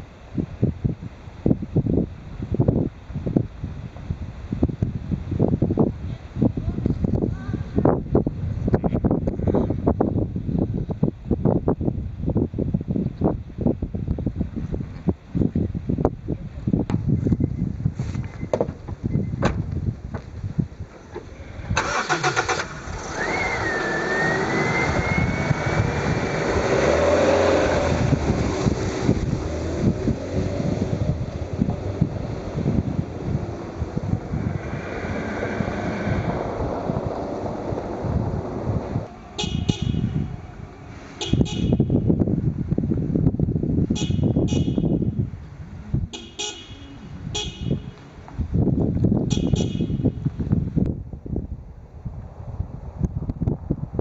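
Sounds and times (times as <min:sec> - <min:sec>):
engine whine: 0:00.0 - 0:54.0
car starter cranking: 0:21.1 - 0:24.6
car engine running: 0:21.8 - 0:50.6.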